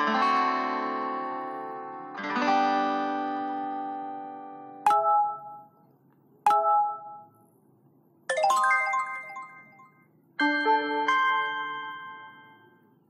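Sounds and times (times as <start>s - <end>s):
phone notification chimes: 4.9s - 5.8s, 6.5s - 7.4s, 8.3s - 12.8s.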